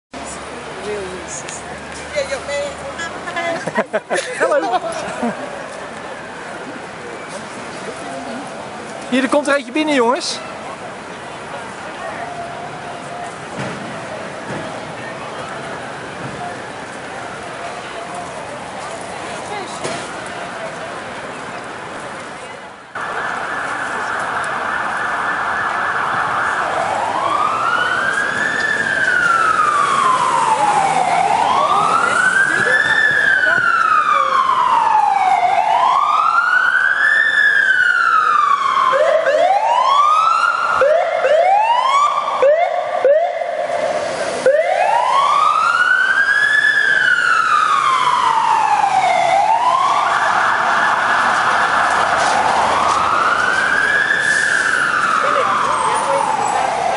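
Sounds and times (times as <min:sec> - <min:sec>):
street traffic: 0:00.1 - 0:56.9
ambulance siren: 0:11.0 - 0:18.9, 0:22.9 - 0:56.9.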